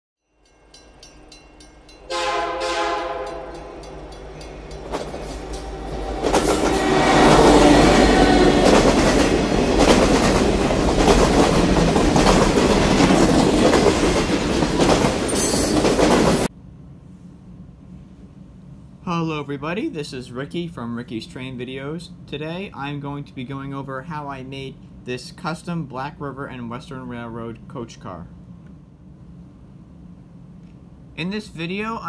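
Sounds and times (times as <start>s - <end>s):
train wheels clattering: 0.6s - 16.5s
train horn: 2.0s - 4.0s, 5.5s - 9.0s.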